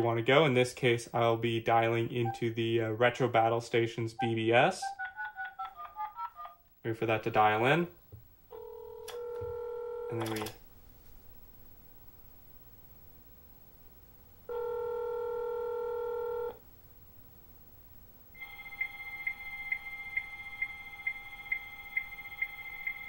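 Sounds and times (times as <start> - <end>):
phone ringback tone: 14.5 - 16.6, 18.4 - 23.0.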